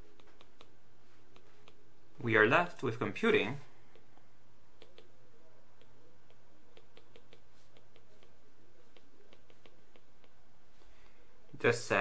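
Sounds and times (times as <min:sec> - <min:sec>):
stylus tapping on tablet screen: 0:00.0 - 0:01.8, 0:05.8 - 0:11.6
low electrical hum: 0:00.0 - 0:12.0.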